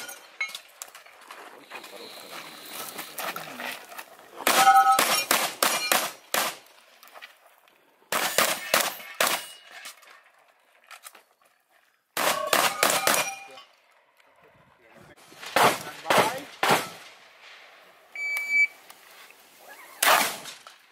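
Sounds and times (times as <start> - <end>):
shotgun shots: 4.4 - 6.6, 8.1 - 9.6, 12.2 - 13.6, 15.4 - 17.2, 20.0 - 20.7
steel targets ringing: 4.5 - 6.1, 12.2 - 13.7.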